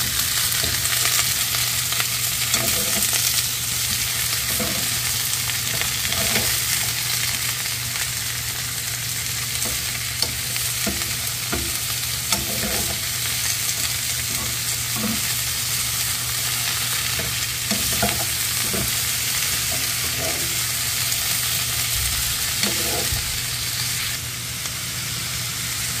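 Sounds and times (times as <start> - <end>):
vegetables sizzling in hot oil: 0.0 - 26.0
metal spatula scraping pan: 2.5 - 3.2, 12.3 - 13.1, 14.3 - 15.3, 17.1 - 20.6, 22.6 - 23.2.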